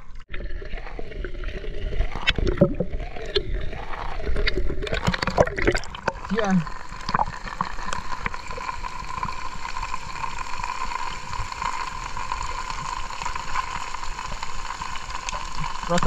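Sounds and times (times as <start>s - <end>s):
heavy rain on water and mud: 6.2s - 16.0s.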